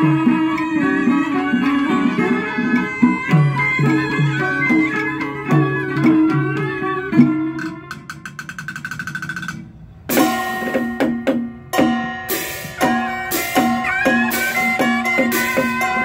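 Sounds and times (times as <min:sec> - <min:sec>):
reed horn melody: 0:00.0 - 0:08.1, 0:12.3 - 0:16.0
moon lute: 0:00.0 - 0:08.5, 0:10.1 - 0:16.0
drum beats: 0:00.0 - 0:16.0
zither: 0:00.0 - 0:16.0
gong: 0:10.1 - 0:16.0.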